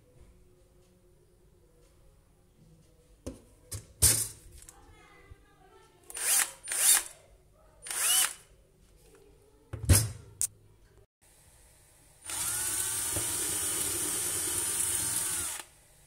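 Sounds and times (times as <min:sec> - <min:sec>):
cordless drill on steel tube: 0:06.1 - 0:07.1, 0:07.8 - 0:08.4, 0:12.2 - 0:15.7.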